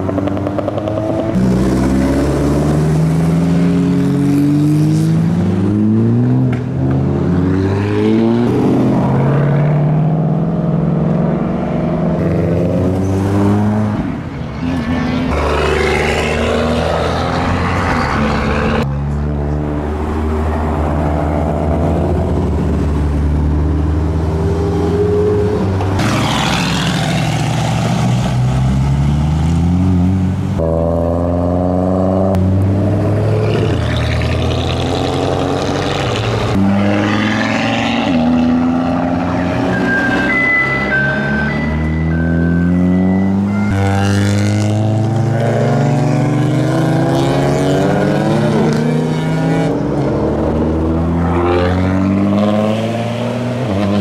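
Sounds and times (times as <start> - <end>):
cars accelerating hard: 0.0 - 54.0
engines revving through gears: 23.5 - 54.0.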